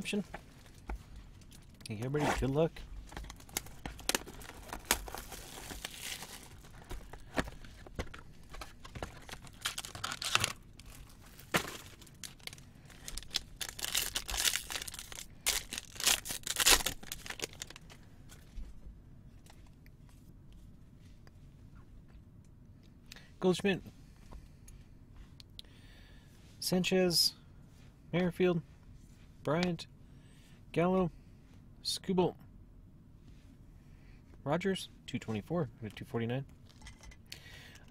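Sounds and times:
plastic and foil wrapping crinkling: 0:03.1 - 0:07.7, 0:08.4 - 0:18.0.

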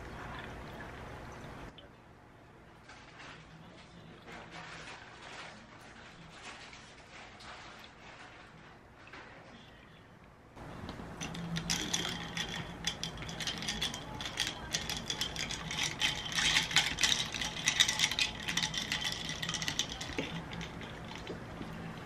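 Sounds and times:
ice cubes clinking in glass: 0:11.2 - 0:21.4.

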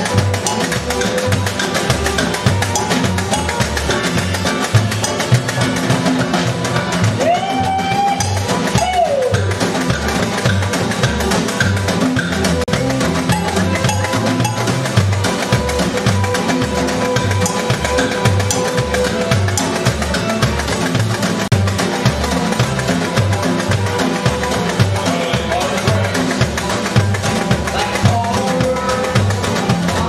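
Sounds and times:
sliding note: 0:00.0 - 0:07.0, 0:08.0 - 0:26.1
double bass plucking: 0:00.0 - 0:30.0
snare drum clicking: 0:00.0 - 0:30.0
strummed acoustic strings: 0:00.0 - 0:30.0.

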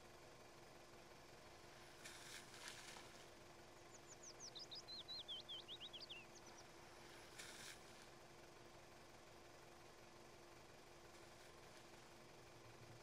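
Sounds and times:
small bird singing: 0:03.6 - 0:07.2.

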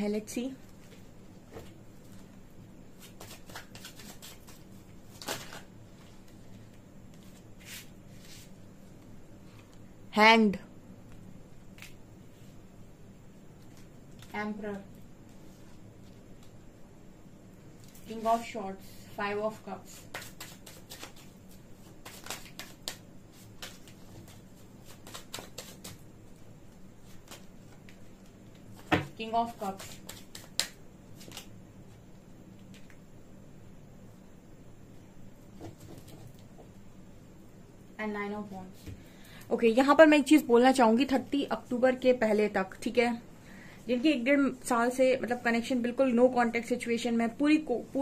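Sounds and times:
cards being shuffled: 0:02.9 - 0:08.5, 0:11.7 - 0:12.0, 0:19.8 - 0:31.5
cards flicking and snapping: 0:20.0 - 0:26.0, 0:29.6 - 0:31.5.

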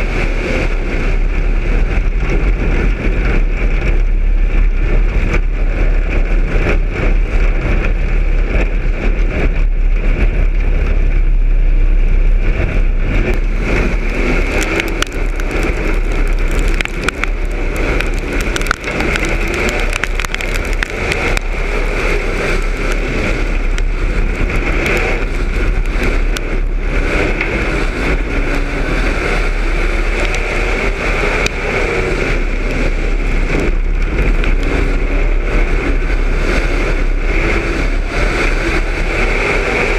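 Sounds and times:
race car engine running hard: 0:00.0 - 0:39.9
sharp clicks and rattles: 0:12.1 - 0:37.4.

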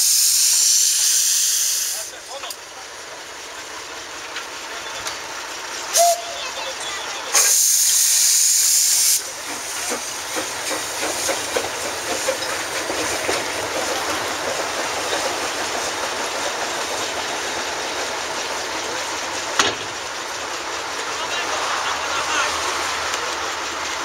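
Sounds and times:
steam venting hiss: 0:00.0 - 0:02.2, 0:07.3 - 0:16.4
train rumbling: 0:00.0 - 0:24.0
clicking on the rails: 0:09.4 - 0:18.8, 0:23.1 - 0:24.0.

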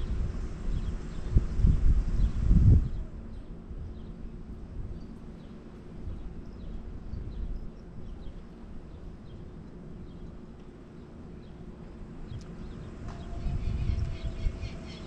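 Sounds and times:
low uneven rumble: 0:00.0 - 0:15.0
faint bird chirps: 0:12.3 - 0:15.0.

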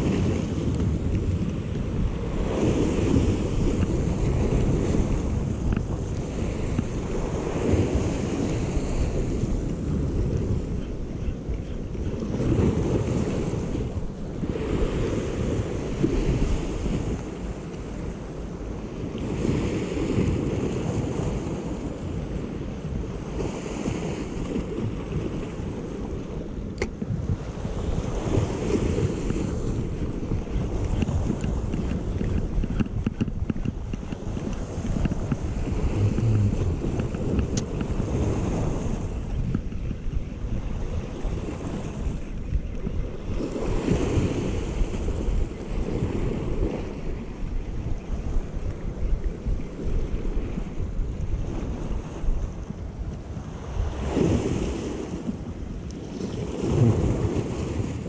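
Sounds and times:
waves breaking on rocky shore: 0:00.0 - 0:47.6, 0:49.4 - 0:58.0
wind buffeting microphone: 0:00.0 - 0:58.0.

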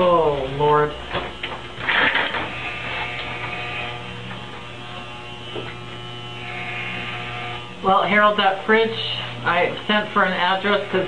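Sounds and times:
electric hair clippers humming: 0:00.0 - 0:11.0.

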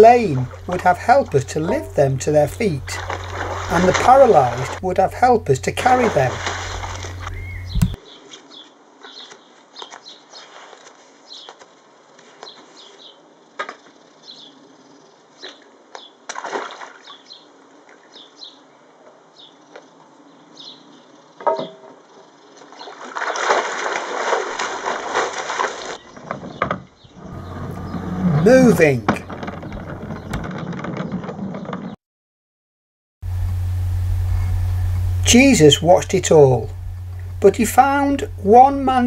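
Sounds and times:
splashing in a paddling pool: 0:00.2 - 0:07.7, 0:16.2 - 0:17.3, 0:22.6 - 0:26.3
small birds chirping: 0:06.4 - 0:10.6, 0:17.0 - 0:21.4.

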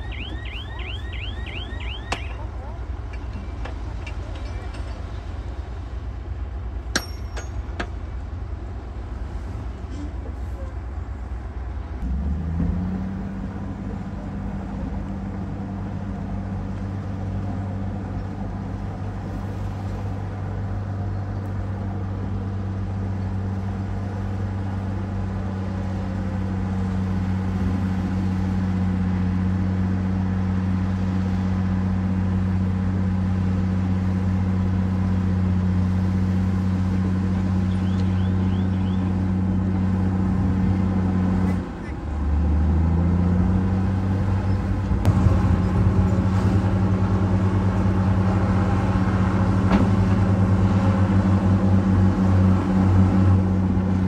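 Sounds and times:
heavy diesel engines droning: 0:00.0 - 0:54.0.

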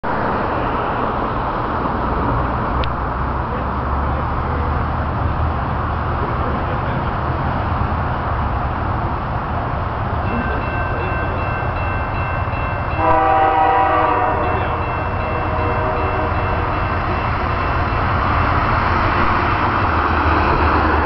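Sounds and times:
train rumbling and hissing: 0:00.0 - 0:21.0
locomotive air horn: 0:13.0 - 0:16.7.

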